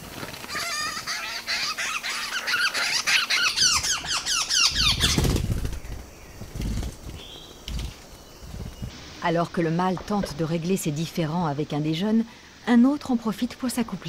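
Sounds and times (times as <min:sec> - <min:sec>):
birds squabbling harsh squeaky calls: 0:00.5 - 0:05.7
wing flutters and thuds: 0:04.7 - 0:09.0.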